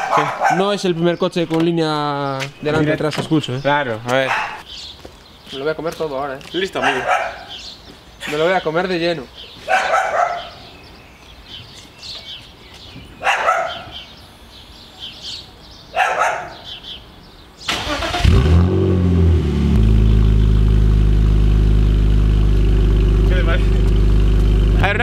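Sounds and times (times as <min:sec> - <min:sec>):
car engine cranking and starting: 0:17.7 - 0:25.0
car engine idling loudly: 0:19.4 - 0:25.0.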